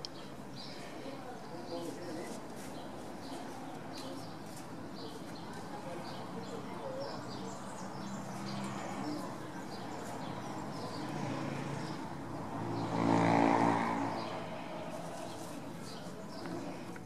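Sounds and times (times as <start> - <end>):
vehicle engine passing: 10.6 - 15.7.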